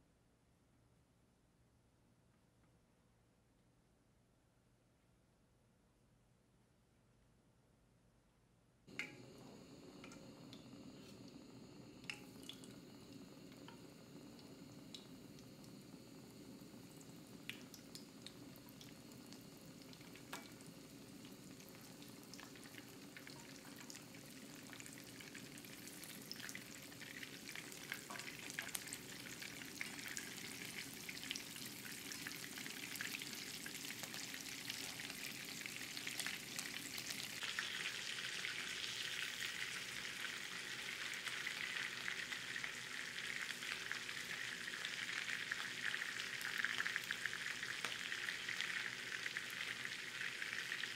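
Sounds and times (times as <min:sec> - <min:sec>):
meatballs sizzling in frying pan: 0:08.9 - 0:50.9.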